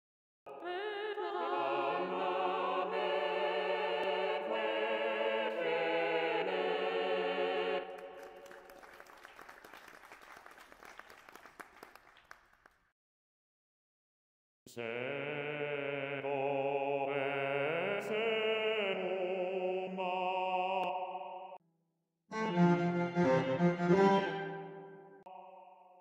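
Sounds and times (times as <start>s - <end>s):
synthesized operatic voices singing: 0.5s - 8.5s, 14.7s - 21.6s, 22.5s - 26.0s
applause: 7.9s - 12.9s.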